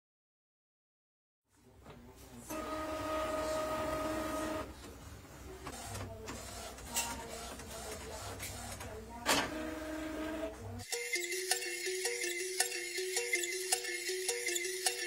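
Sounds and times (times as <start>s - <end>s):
printer motor whine: 2.5s - 4.7s, 9.4s - 10.6s
printer mechanism whirring: 2.5s - 5.0s, 5.6s - 10.6s.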